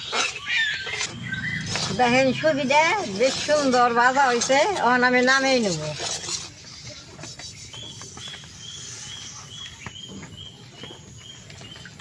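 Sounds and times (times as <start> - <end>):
animal chirping: 0.0 - 4.1.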